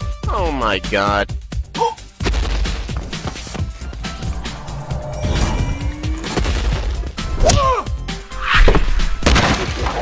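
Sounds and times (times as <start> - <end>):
background music: 0.0 - 10.0
thuds and crashes: 8.6 - 10.0.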